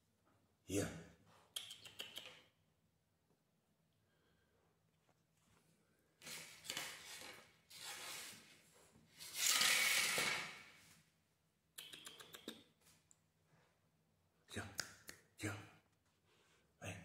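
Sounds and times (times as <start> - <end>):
quick clicks: 1.6 - 2.4, 11.8 - 12.6.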